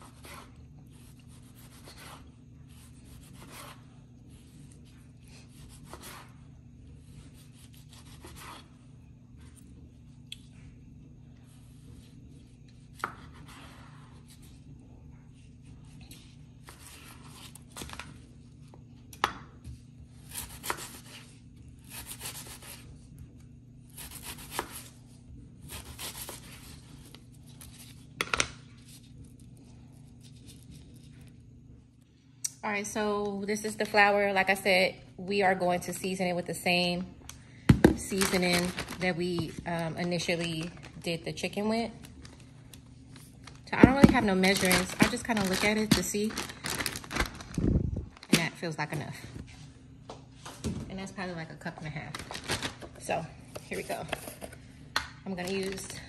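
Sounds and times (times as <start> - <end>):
knife cutting vegetables on board: 0.0 - 3.8, 5.5 - 6.4, 7.6 - 8.6
steady low hum: 0.0 - 56.0.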